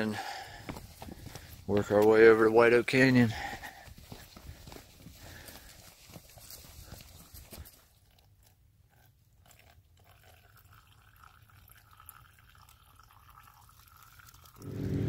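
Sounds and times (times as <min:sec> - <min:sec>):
water trickling into bottle: 0:08.0 - 0:14.6.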